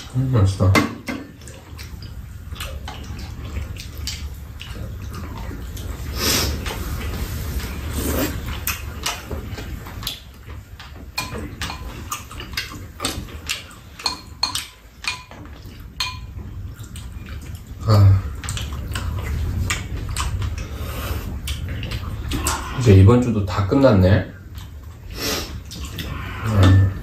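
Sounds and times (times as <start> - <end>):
steady low hum: 0.0 - 27.0
utensils tapping against bowls: 10.8 - 16.5, 25.8 - 27.0.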